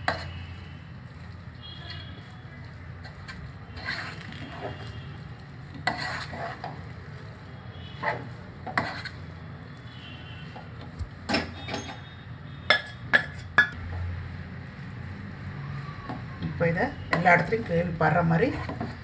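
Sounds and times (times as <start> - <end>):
wooden spoon scraping a pot: 0.0 - 7.0, 7.8 - 9.4, 17.1 - 19.0.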